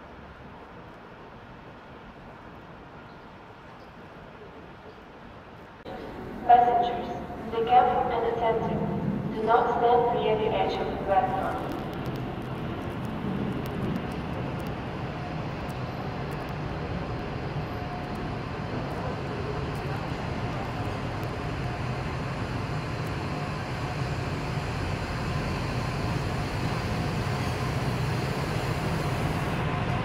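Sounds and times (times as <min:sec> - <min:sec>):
railcar engine hum: 0:00.0 - 0:30.0
wheel and rail noise: 0:08.6 - 0:30.0.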